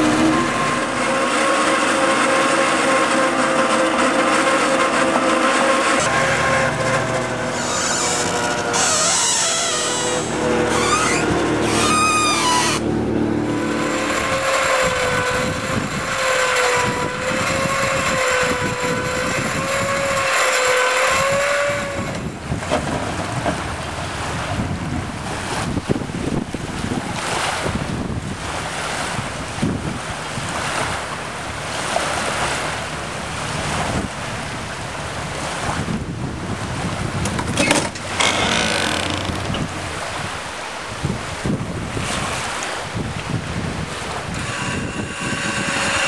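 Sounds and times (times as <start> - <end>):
motor whining: 0.0 - 22.4, 37.6 - 39.8, 44.2 - 46.0
choppy water: 0.0 - 46.0
wind buffeting microphone: 5.9 - 46.0.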